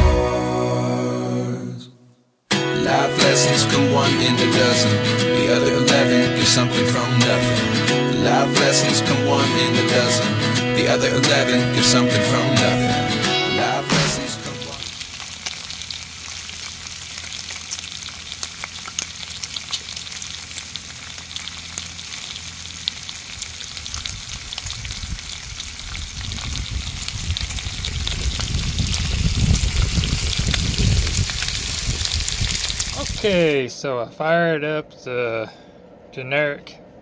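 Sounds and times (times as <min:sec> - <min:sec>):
grease popping: 0:14.0 - 0:33.5
bacon sizzling on a griddle: 0:14.5 - 0:33.5
low rumble: 0:24.0 - 0:37.0.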